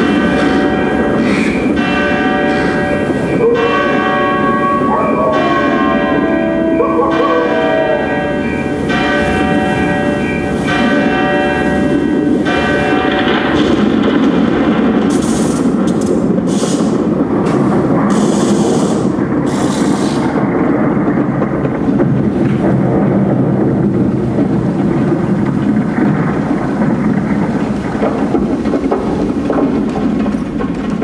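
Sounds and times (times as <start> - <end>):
short hissing bursts: 16.5 - 16.9, 18.1 - 20.3.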